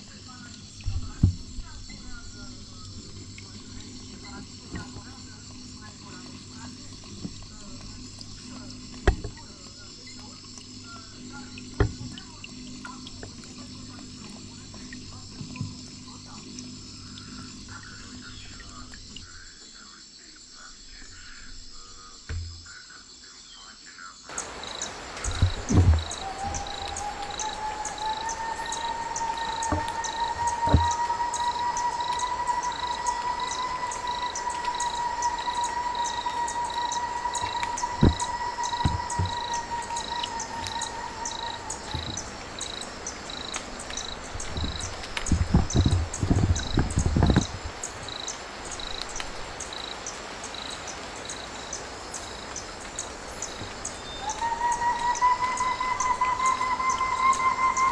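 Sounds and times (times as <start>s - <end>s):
insect chirping: 0.0s - 57.9s
long steady tone: 24.3s - 42.7s, 54.4s - 57.9s
low thumps: 24.8s - 42.5s, 44.4s - 47.7s.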